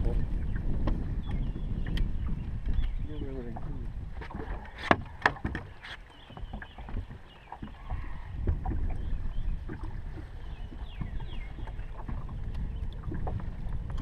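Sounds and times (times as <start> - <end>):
low rumble of wind and water: 0.0 - 14.0
fish handling knocks and clicks: 4.2 - 9.0.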